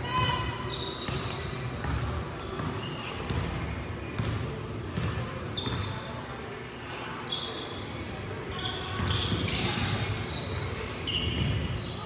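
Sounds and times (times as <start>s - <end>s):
sneaker squeaks on floor: 0.2s - 3.6s, 5.0s - 6.2s, 7.2s - 12.0s
basketball bouncing on court: 1.1s - 5.9s, 9.0s - 9.9s.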